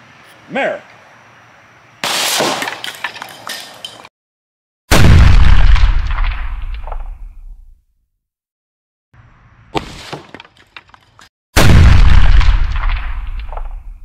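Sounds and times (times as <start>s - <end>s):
spray cans bursting from gunshots: 2.0s - 3.0s.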